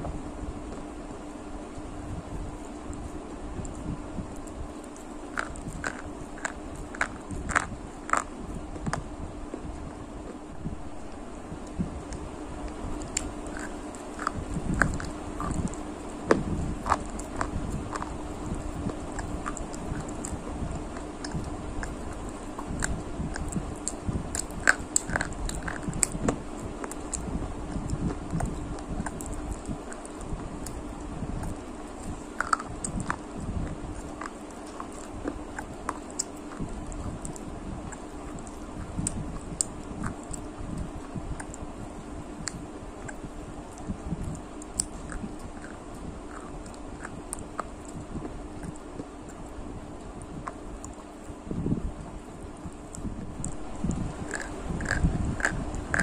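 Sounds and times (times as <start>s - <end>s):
faint steady hum: 0.0s - 56.0s
crunching and chewing snacks: 0.6s - 56.0s
snack sticks cracking: 4.4s - 9.0s, 11.0s - 41.6s, 42.4s - 48.0s, 52.7s - 56.0s.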